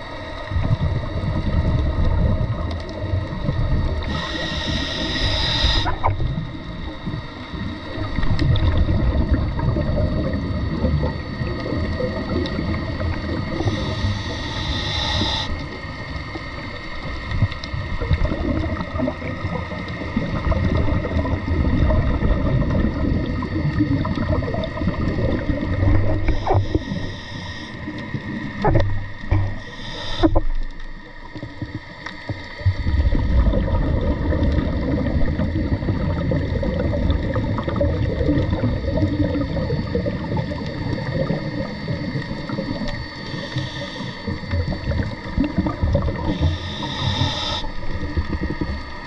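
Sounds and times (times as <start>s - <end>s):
exhaust bubbles underwater: 0.0s - 49.0s
hissing regulator inhale: 3.9s - 6.3s, 13.2s - 16.3s, 25.8s - 30.7s, 41.9s - 45.4s, 46.1s - 48.8s.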